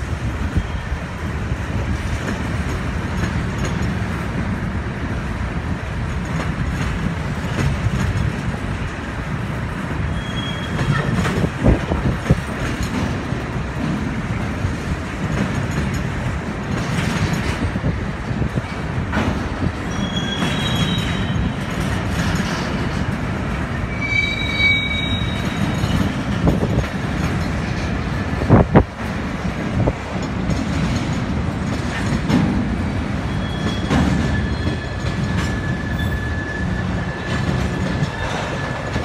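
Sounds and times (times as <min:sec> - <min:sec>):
train wheels rumbling on rail: 0:00.0 - 0:39.0
high wheel squeals: 0:10.1 - 0:11.3, 0:19.8 - 0:22.8, 0:23.8 - 0:26.6, 0:33.2 - 0:39.0.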